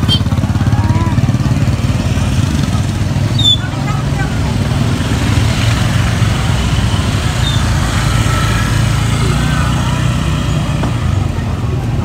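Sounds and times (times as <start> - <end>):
market crowd chatter: 0.0 - 12.0
motorbike engines running: 0.0 - 12.0.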